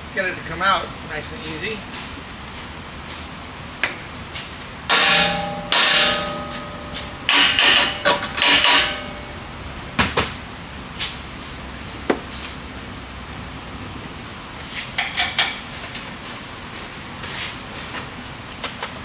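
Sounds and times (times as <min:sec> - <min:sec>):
hammer striking metal: 0:04.9 - 0:10.2.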